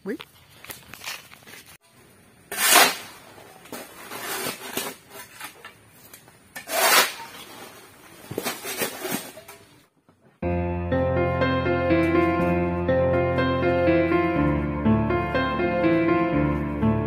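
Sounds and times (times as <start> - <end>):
shovel scraping on concrete: 2.5 - 5.6, 6.6 - 9.5
background music: 10.4 - 17.0.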